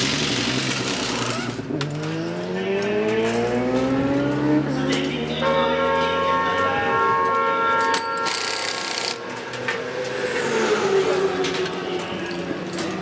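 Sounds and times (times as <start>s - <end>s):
pneumatic impact wrench whining: 0.0s - 1.6s, 8.2s - 9.3s.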